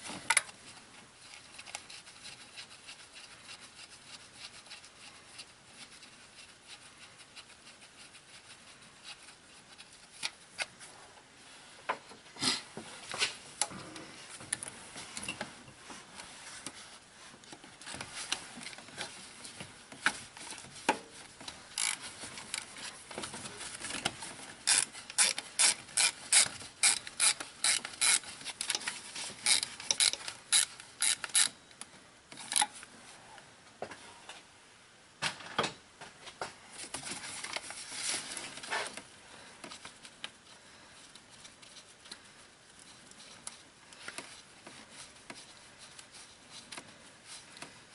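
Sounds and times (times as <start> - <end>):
hand ratchet clicking: 21.8 - 22.6, 24.7 - 31.6.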